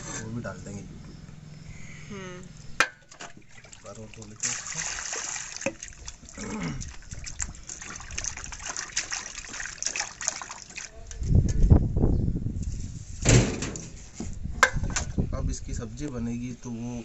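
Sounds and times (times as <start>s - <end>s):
water sloshing and splashing: 2.8s - 11.7s
water gushing onto concrete floor: 3.1s - 11.3s.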